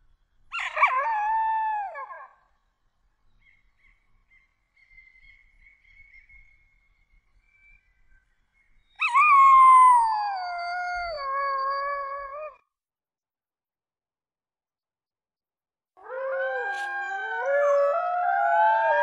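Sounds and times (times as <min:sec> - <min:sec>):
dog howling: 0:16.0 - 0:19.0.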